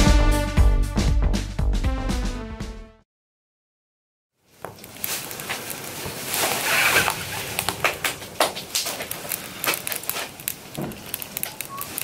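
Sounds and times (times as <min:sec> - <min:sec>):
low hiss of fire: 0:04.4 - 0:12.0
wood fire crackling and popping: 0:04.5 - 0:12.0.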